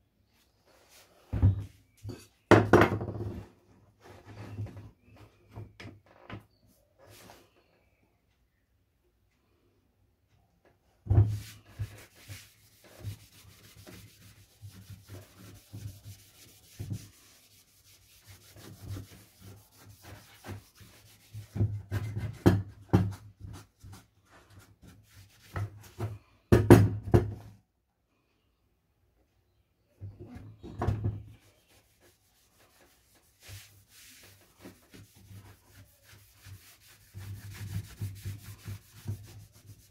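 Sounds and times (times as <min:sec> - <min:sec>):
cloth rubbing on wood: 0:11.3 - 0:22.2, 0:31.4 - 0:39.9.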